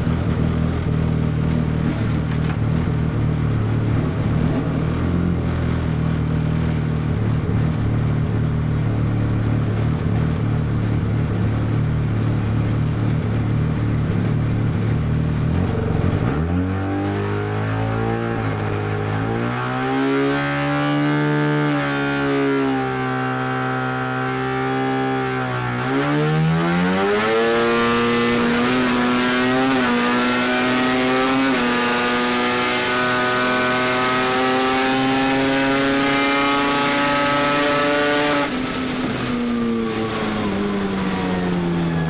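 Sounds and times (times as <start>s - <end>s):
race car engine revving: 9.4s - 42.0s.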